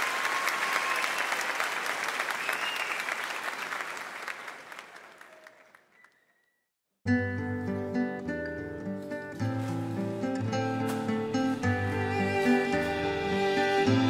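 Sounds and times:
whistles from crowd: 0.0 - 1.6, 2.2 - 3.4, 4.3 - 6.6
audience applauding: 0.0 - 6.4.

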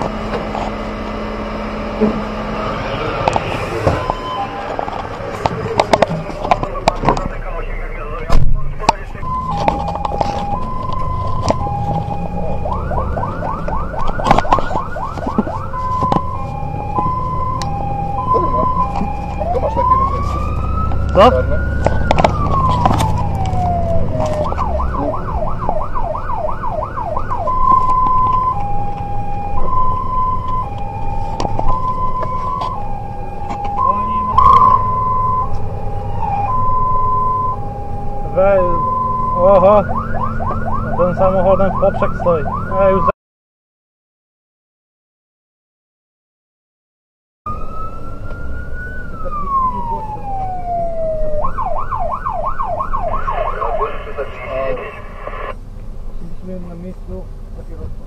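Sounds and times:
electronic siren: 0.0 - 6.0, 7.6 - 43.1, 47.5 - 55.6
truck engine: 0.0 - 43.1, 47.5 - 58.0.

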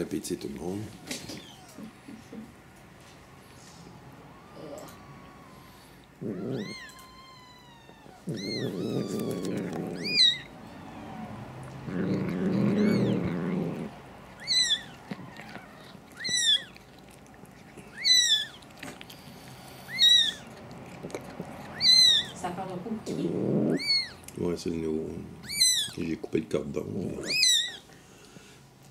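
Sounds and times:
cat licking a kitten: 0.0 - 28.9
kitten mewing: 0.8 - 2.5, 4.4 - 19.0, 19.8 - 24.3, 25.4 - 26.0, 26.9 - 27.9.

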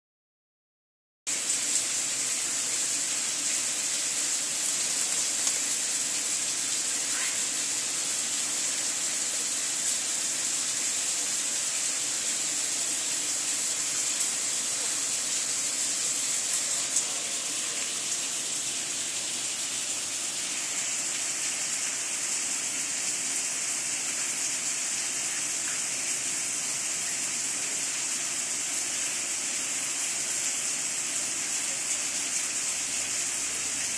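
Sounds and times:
running water hissing: 1.3 - 33.9.

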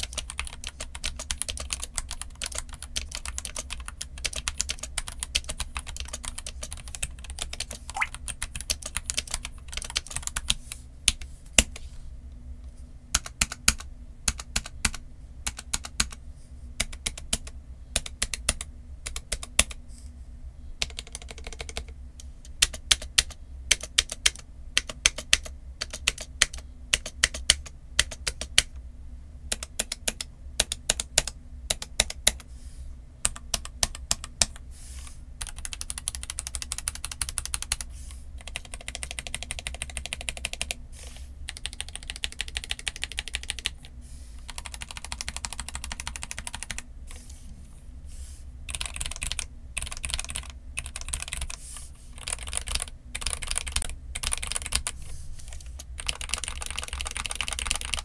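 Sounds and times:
mechanical keyboard typing: 0.0 - 11.7, 13.2 - 16.2, 16.8 - 19.8, 20.8 - 28.7, 29.5 - 32.4, 33.2 - 34.6, 35.4 - 40.8, 41.5 - 43.9, 44.5 - 46.8, 48.7 - 51.6, 52.2 - 58.0.

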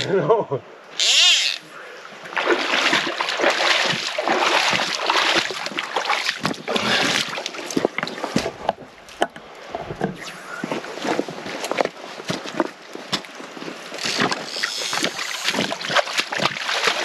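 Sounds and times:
wading through water: 0.9 - 17.0.

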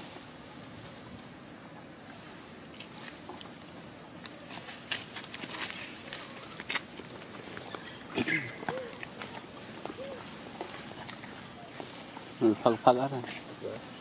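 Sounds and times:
insects droning: 0.0 - 14.0
faint clicks and rustles: 2.7 - 12.5.

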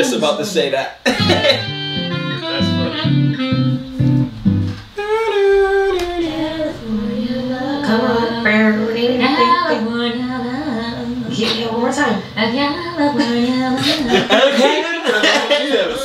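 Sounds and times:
plucked guitar notes: 1.1 - 9.7.

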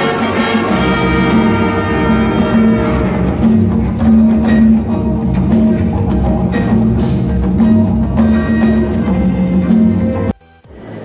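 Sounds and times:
horns holding notes: 0.0 - 10.3
percussion steady beat: 0.0 - 11.0.

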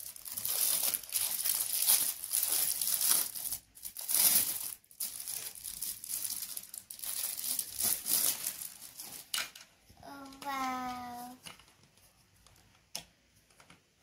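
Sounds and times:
plastic wrap crinkling: 0.0 - 9.6.

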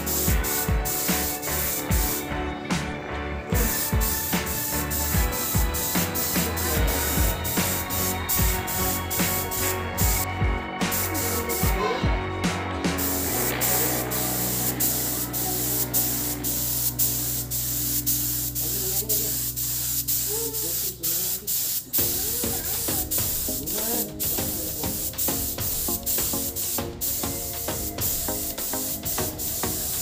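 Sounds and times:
spray gun hissing: 0.0 - 2.4, 3.5 - 12.0, 12.6 - 30.0.

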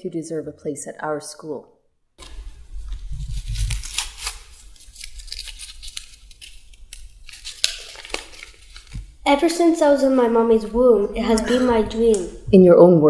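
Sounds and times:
paper crinkling and rustling: 2.2 - 9.2.

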